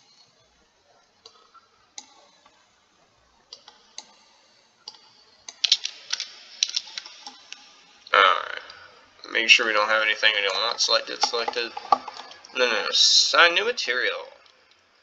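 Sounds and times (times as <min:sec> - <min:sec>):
mouse and keyboard clicks: 0:04.9 - 0:07.6.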